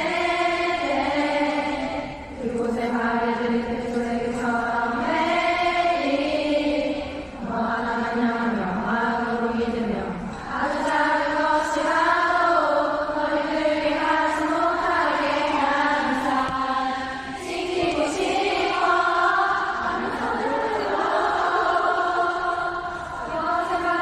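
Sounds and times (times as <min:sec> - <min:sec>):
choir singing in unison: 0:00.0 - 0:24.0.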